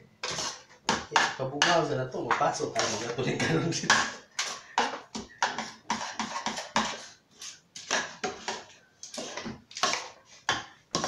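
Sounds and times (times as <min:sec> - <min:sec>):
spoon scraping metal pot: 0:00.2 - 0:11.0.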